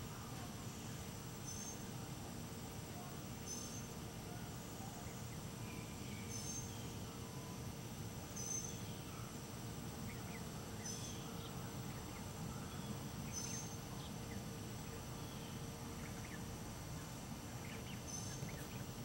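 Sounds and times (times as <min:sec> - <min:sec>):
low steady background noise: 0:00.0 - 0:19.0
young turkeys peeping: 0:15.9 - 0:19.0.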